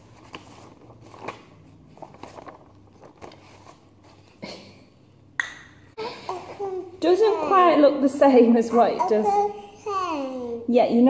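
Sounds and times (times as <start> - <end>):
paper rustling and crinkling: 0.0 - 4.3.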